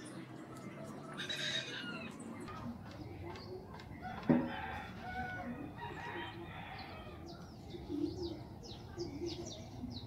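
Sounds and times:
small birds chirping: 0.0 - 4.2, 6.4 - 10.0.

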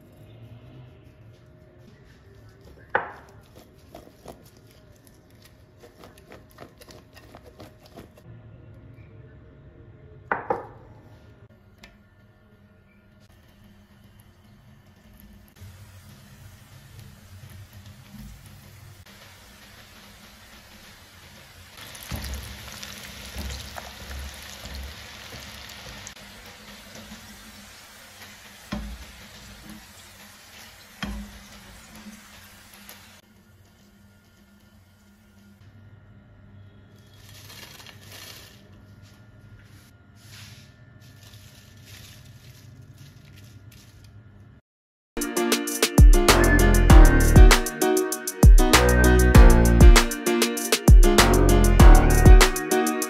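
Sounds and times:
potatoes deep-frying in oil: 13.4 - 35.3.

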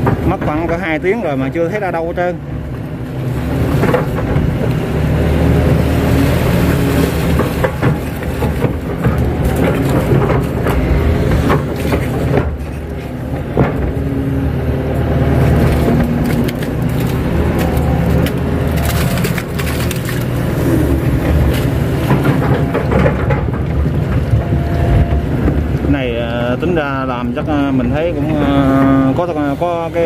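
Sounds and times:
bucket dragging mud: 0.0 - 30.0
excavator diesel engine running: 0.0 - 30.0
metal knocks and clanks: 6.6 - 25.9.

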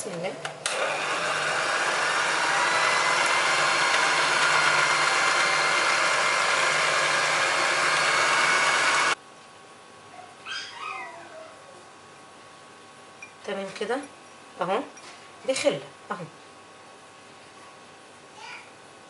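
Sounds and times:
electric hand mixer whisking: 0.7 - 9.2.

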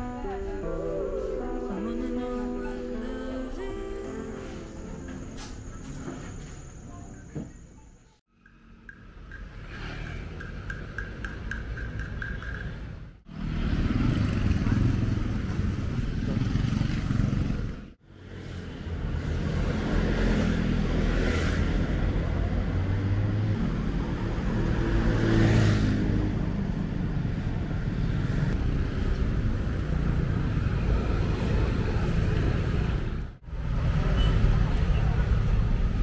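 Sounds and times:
street traffic rumble: 0.0 - 36.0
vehicle passing close: 8.4 - 36.0.

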